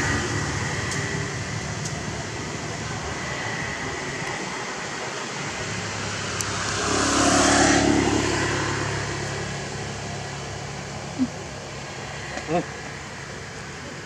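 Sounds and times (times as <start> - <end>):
vehicle driving past: 5.5 - 10.7.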